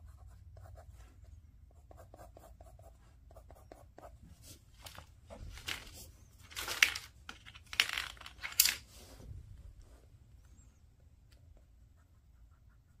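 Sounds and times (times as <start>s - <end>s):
pencil strokes on paper: 0.0s - 4.7s, 11.6s - 13.0s
pencils clattering down: 4.8s - 9.0s.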